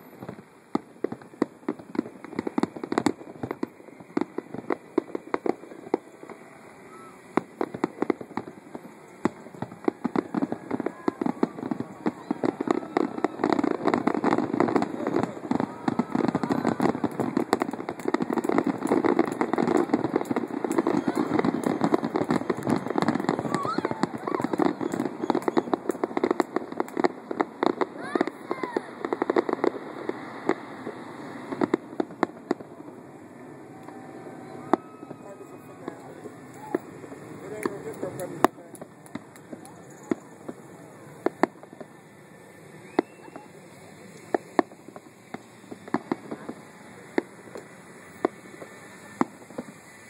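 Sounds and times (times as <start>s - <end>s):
fireworks bursting and crackling: 0.0s - 50.0s.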